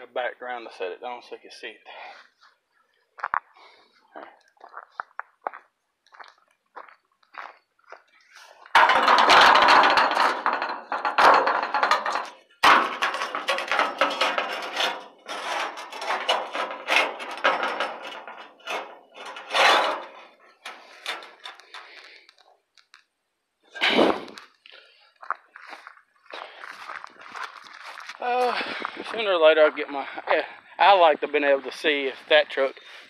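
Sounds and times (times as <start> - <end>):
steel sheet scraping and clinking: 8.4 - 22.1.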